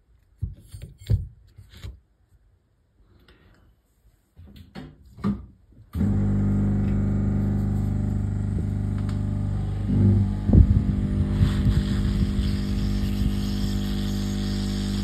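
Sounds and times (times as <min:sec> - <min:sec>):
hot air blower running: 0:06.0 - 0:15.0.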